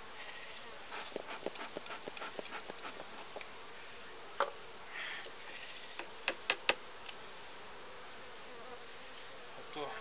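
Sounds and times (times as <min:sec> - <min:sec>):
bees buzzing: 0:00.7 - 0:04.9.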